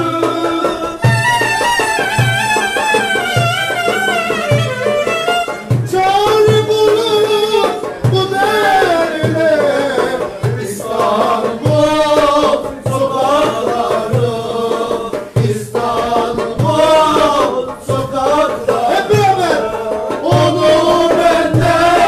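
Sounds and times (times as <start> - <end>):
goblet drum beating: 0.0 - 22.0
man singing: 0.0 - 22.0
violin: 1.0 - 6.1.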